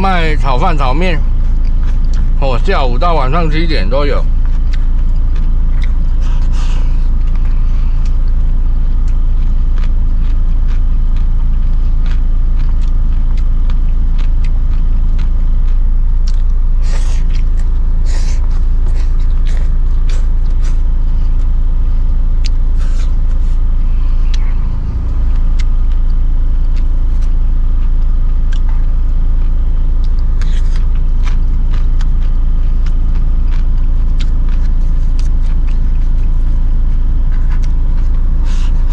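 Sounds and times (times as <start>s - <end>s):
person chewing crunchy food: 0.0s - 38.9s
vehicle engine rumbling: 0.0s - 38.9s.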